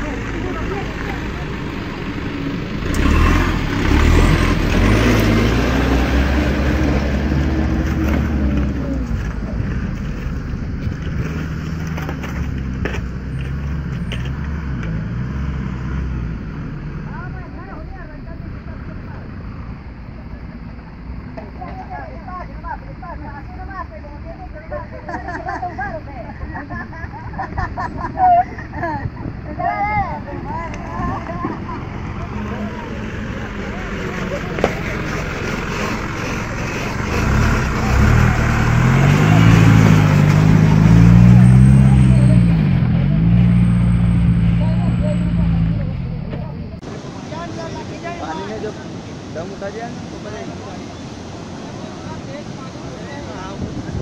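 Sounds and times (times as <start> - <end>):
truck engine driving past: 0.0 - 21.2, 30.3 - 46.9
truck engine running low: 30.3 - 46.8.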